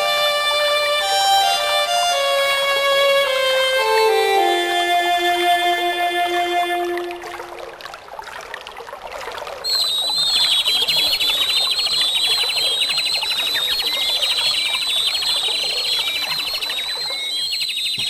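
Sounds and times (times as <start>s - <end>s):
birds chirping in rapid trills: 10.1s - 18.0s.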